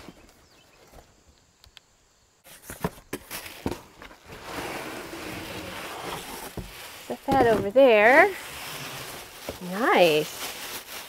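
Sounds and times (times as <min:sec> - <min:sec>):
cardboard box scraping and rustling: 0:02.5 - 0:11.0.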